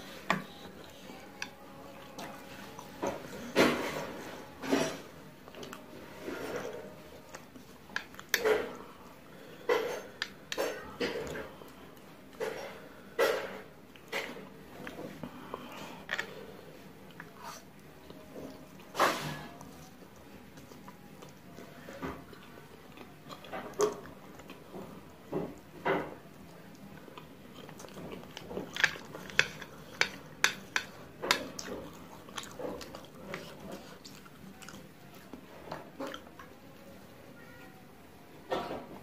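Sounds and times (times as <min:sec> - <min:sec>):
person chewing and slurping: 0:26.7 - 0:36.4.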